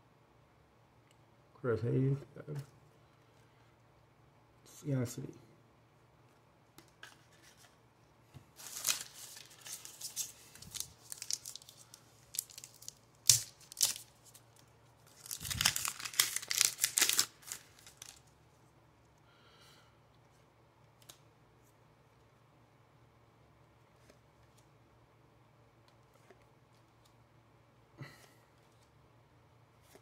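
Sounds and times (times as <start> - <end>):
wrapper tearing and crinkling: 8.6 - 18.3.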